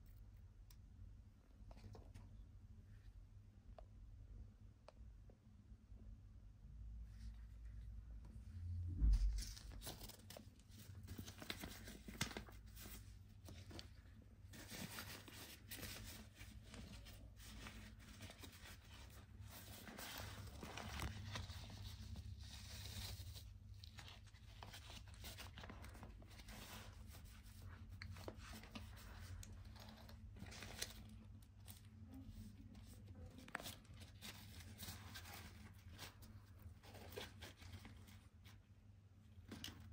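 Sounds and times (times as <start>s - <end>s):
cloth pouch rustling and scraping: 9.0s - 32.9s.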